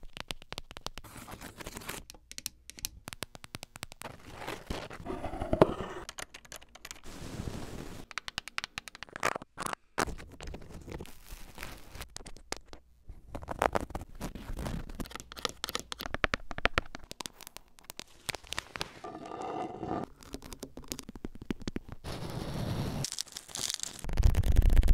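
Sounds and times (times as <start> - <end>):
fingernails tapping and scratching: 19.0 - 21.8.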